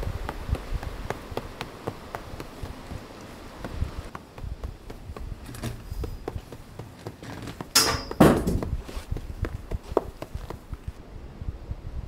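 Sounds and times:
wind buffeting microphone: 0.0s - 12.0s
small knocks: 3.6s - 10.6s.

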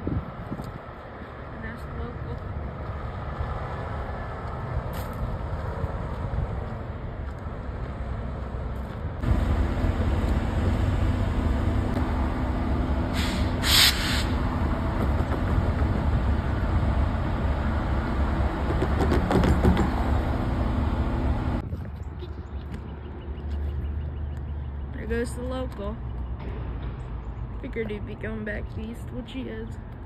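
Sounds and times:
diesel locomotive engine rumble: 0.0s - 22.6s
air hiss: 13.1s - 14.4s.

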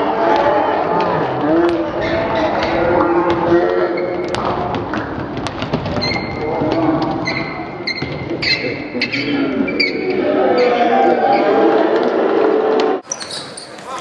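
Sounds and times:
crowd chatter: 0.0s - 5.0s, 6.6s - 14.0s
basketball bouncing: 1.4s - 8.6s
sneakers squeaking on gym floor: 5.8s - 6.5s, 7.1s - 10.1s, 13.0s - 14.0s.

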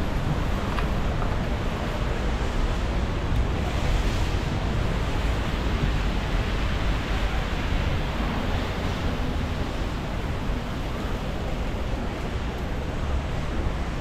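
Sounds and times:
city street traffic noise: 0.0s - 14.0s.

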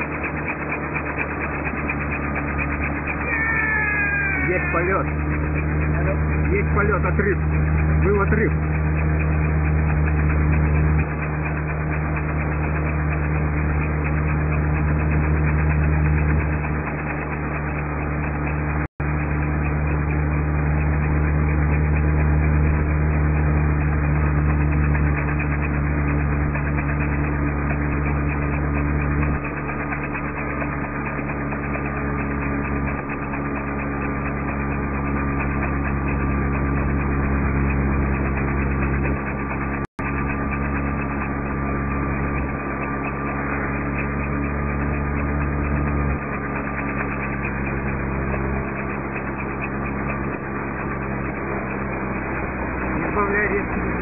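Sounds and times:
car engine running: 0.0s - 54.0s.

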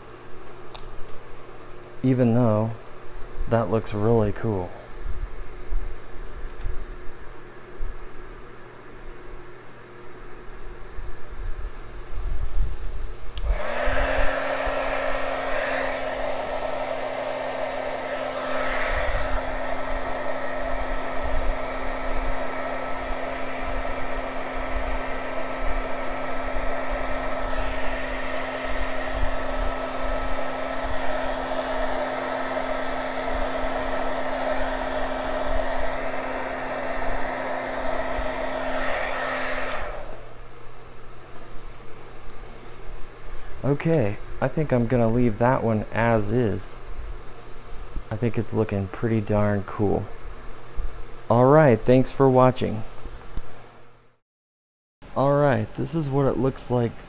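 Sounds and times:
heat gun fan whine: 0.0s - 54.0s, 55.1s - 57.0s
rush of air: 13.4s - 32.1s
heat gun switch: 13.4s - 40.2s.

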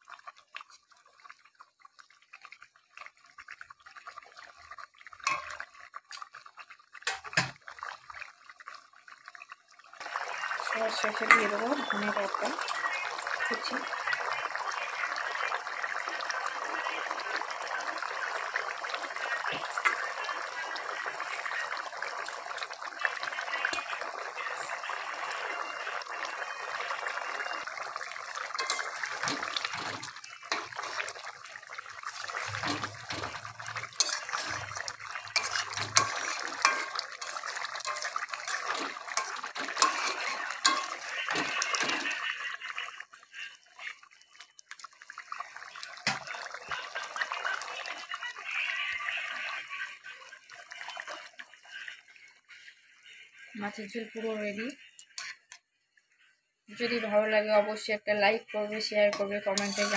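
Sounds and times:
curry bubbling in a pan: 0.0s - 56.3s, 59.0s - 59.9s
metal spatula clicking on pan: 39.2s - 41.0s, 59.2s - 59.9s.

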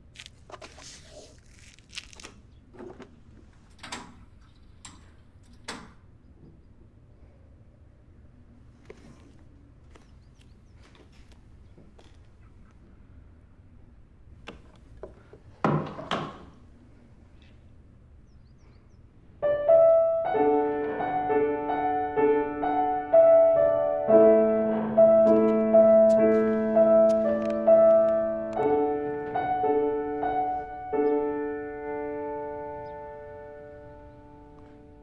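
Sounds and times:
slow piano melody: 19.3s - 35.0s.

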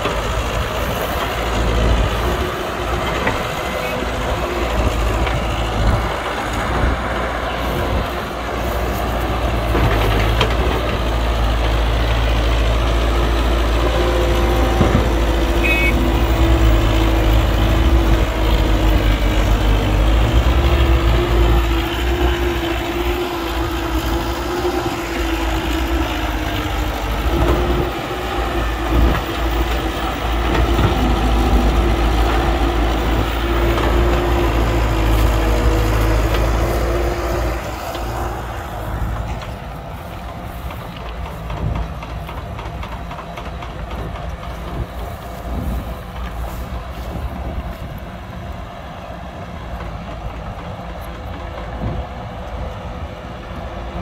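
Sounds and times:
heavy diesel machinery engine rumble: 0.0s - 54.0s.

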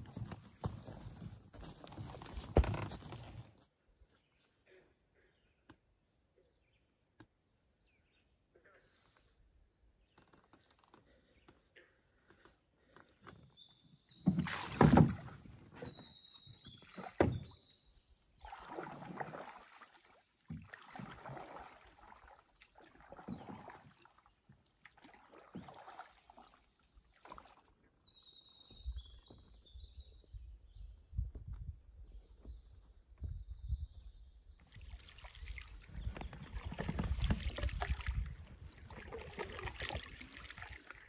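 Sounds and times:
canoe knocking and scraping: 0.0s - 3.6s, 14.1s - 17.7s, 20.5s - 21.8s, 34.8s - 40.7s
paddle strokes splashing water: 14.2s - 27.8s, 34.7s - 41.0s.

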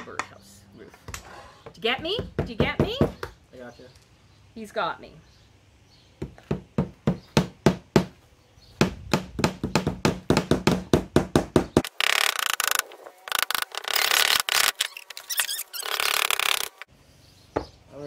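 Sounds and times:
hammers tapping nails into wood: 6.2s - 8.1s, 8.8s - 11.9s.

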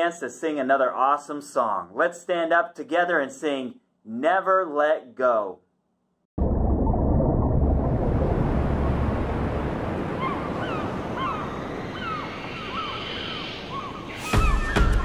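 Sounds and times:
sudden loud burst: 6.4s - 10.1s
ocean surf washing: 7.7s - 14.6s
short falling bird calls: 10.2s - 15.0s.

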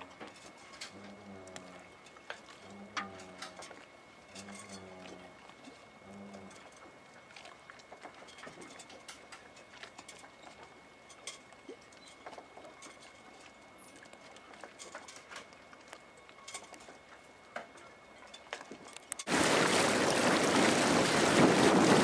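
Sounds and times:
small clicks and taps from boats: 0.0s - 19.4s.

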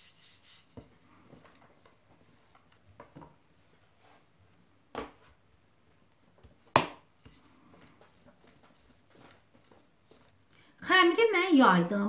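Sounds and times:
hands rubbing dough: 0.0s - 2.8s, 5.4s - 10.5s
rolling pin knocking on countertop: 6.7s - 7.1s.

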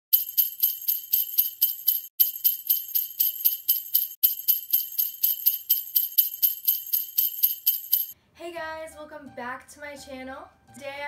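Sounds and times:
sleigh bells shaken: 0.1s - 8.2s.

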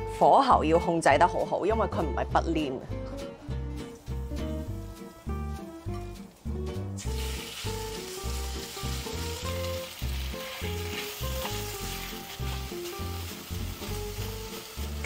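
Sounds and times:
background music with steady beat: 0.0s - 15.0s
meat sizzling in hot oil: 4.0s - 5.4s, 7.0s - 15.0s.

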